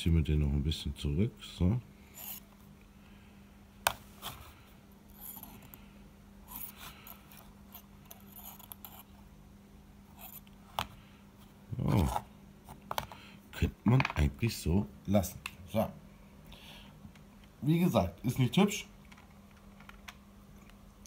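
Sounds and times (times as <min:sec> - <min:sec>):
person murmuring: 0:11.7 - 0:12.2.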